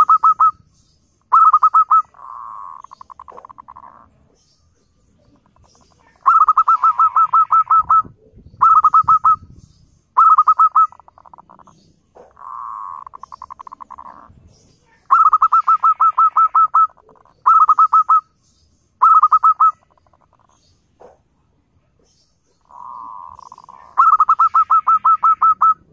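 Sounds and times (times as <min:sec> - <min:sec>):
rough purring bird call: 0:01.3 - 0:04.2, 0:05.4 - 0:09.4, 0:10.2 - 0:14.4, 0:22.6 - 0:25.9
dove cooing in staccato phrases: 0:01.3 - 0:04.3, 0:05.2 - 0:09.5, 0:10.2 - 0:14.3, 0:15.0 - 0:18.2, 0:19.0 - 0:21.2, 0:22.6 - 0:25.9.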